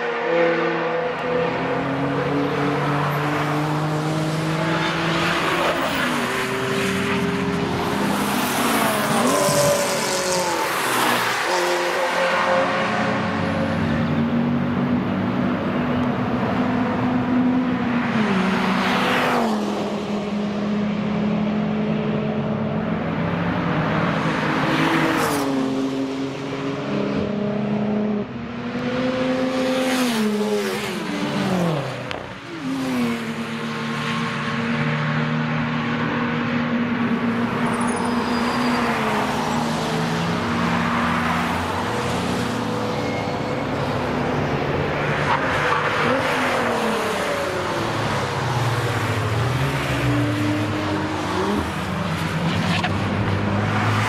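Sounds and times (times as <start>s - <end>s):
cars and motorcycles passing: 0.0s - 54.0s.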